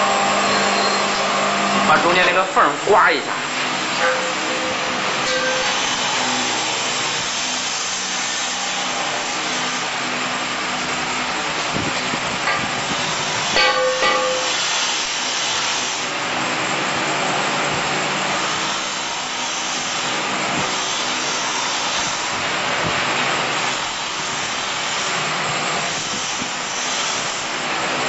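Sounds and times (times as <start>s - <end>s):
rendering machine whirring: 0.0s - 28.0s
hiss of mortar spraying: 14.3s - 16.2s, 18.8s - 27.8s.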